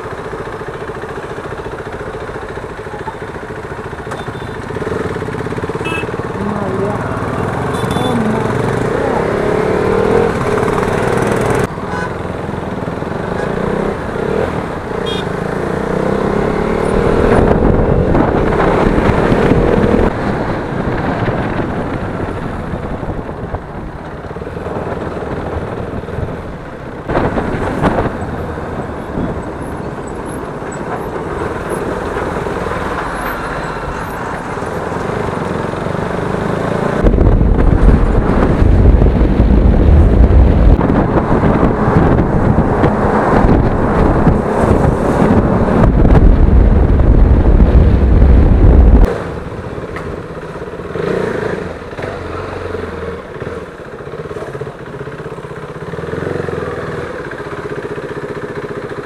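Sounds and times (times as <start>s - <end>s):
motorcycle engine running: 0.0s - 59.0s
road and traffic noise: 0.0s - 59.0s
wind buffeting on microphone: 16.9s - 29.8s, 37.0s - 49.1s.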